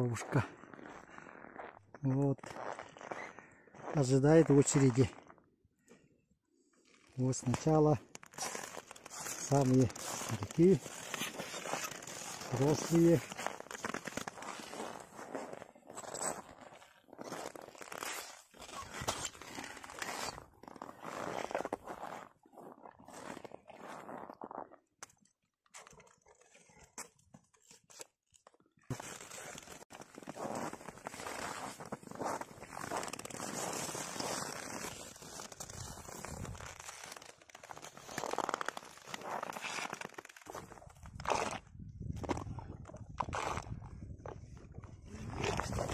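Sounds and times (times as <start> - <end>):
footsteps crunching frozen snow: 0.0 - 5.5, 6.8 - 45.9.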